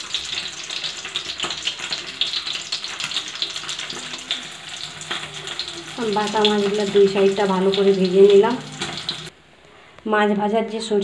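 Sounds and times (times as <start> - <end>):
fish frying in hot oil: 0.0 - 9.3.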